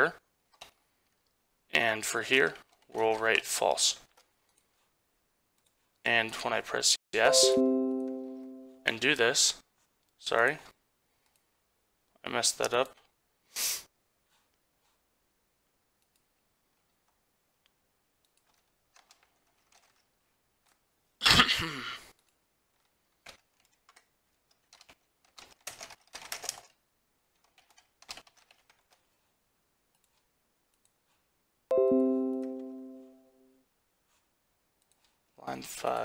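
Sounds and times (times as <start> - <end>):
notification chime: 7.2 - 8.9, 31.7 - 33.3
keyboard typing: 18.2 - 20.1, 22.2 - 29.0, 31.7 - 33.2.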